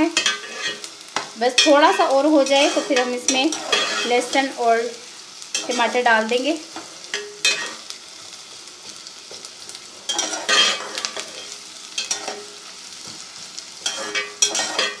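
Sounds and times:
onions sizzling in a pot: 0:00.0 - 0:15.0
metal spatula scraping a pot: 0:00.2 - 0:00.9, 0:01.6 - 0:04.5, 0:10.1 - 0:12.5, 0:13.8 - 0:15.0.

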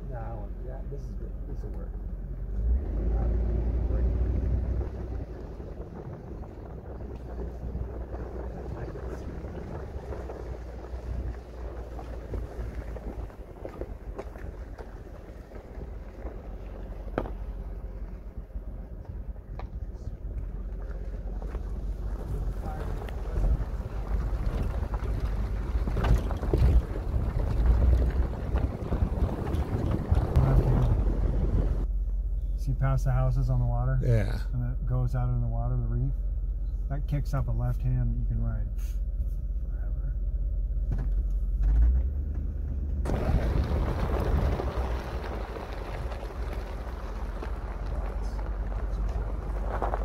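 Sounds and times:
vehicle cabin rumble on dirt road: 0:00.0 - 0:50.0
knocks and rattles from bumps: 0:21.4 - 0:31.8.

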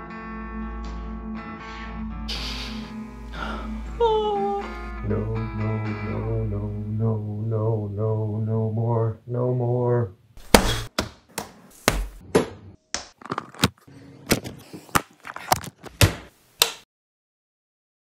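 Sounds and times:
guitar music: 0:00.0 - 0:06.8
hard sharp blows with thuds: 0:10.4 - 0:11.1.

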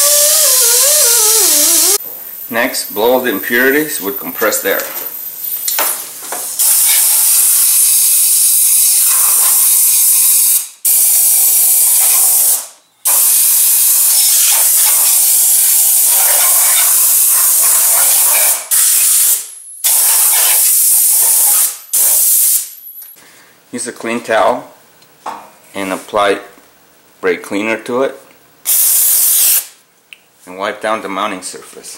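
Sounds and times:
air blow gun hissing: 0:00.0 - 0:02.0, 0:06.4 - 0:22.6, 0:28.7 - 0:29.7.

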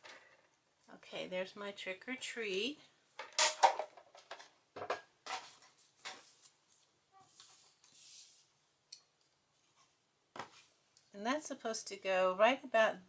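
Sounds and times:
paper rustling and scraping: 0:05.4 - 0:08.5
soft hiss: 0:05.6 - 0:11.2.

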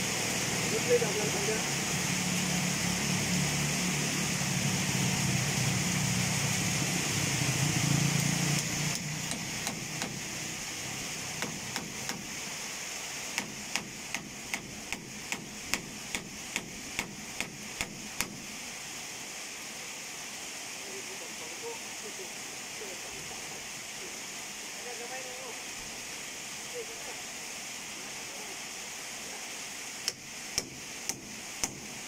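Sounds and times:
steady hiss: 0:00.0 - 0:32.0
sharp evenly spaced knocks: 0:08.6 - 0:10.3, 0:11.4 - 0:12.4, 0:13.3 - 0:18.4, 0:30.0 - 0:31.9.

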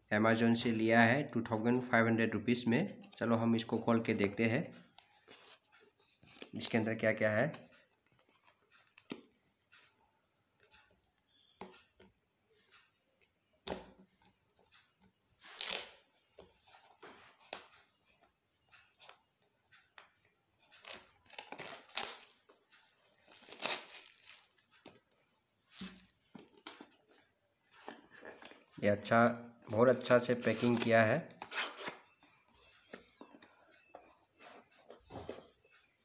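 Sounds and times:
plastic shrink-wrap tearing: 0:20.8 - 0:22.4, 0:23.2 - 0:24.6.

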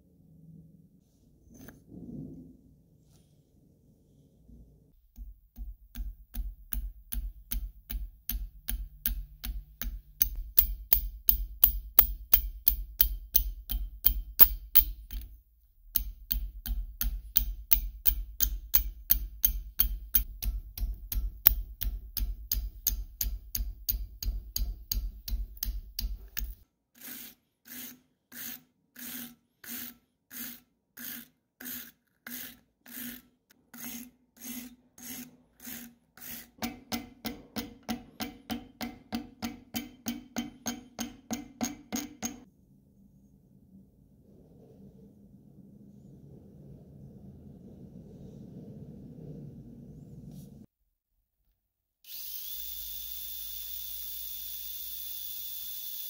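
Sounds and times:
hand file rasping on metal: 0:17.0 - 0:36.6.

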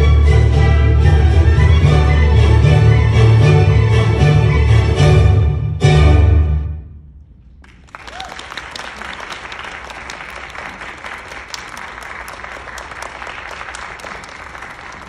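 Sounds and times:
audience applause: 0:07.6 - 0:15.0.

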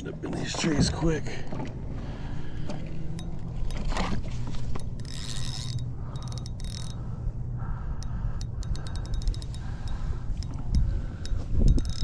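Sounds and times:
fishing reel ratcheting: 0:04.7 - 0:07.0, 0:08.0 - 0:12.0.

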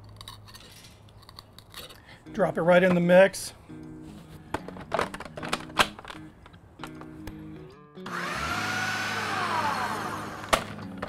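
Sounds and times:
blender motor whine: 0:08.1 - 0:10.7.

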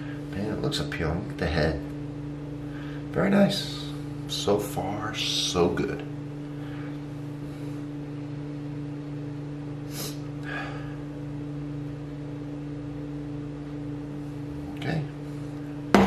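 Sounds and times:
steady low hum: 0:00.0 - 0:16.0
man breathing: 0:09.9 - 0:11.1.

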